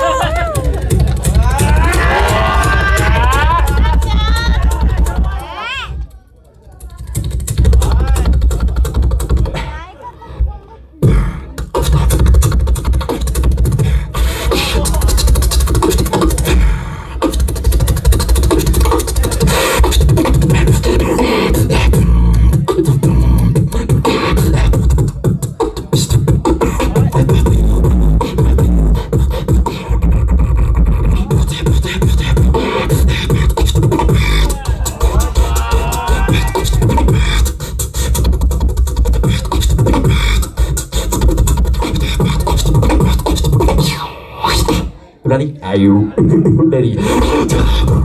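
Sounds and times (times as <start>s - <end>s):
beatboxing into microphone: 0.0s - 48.0s.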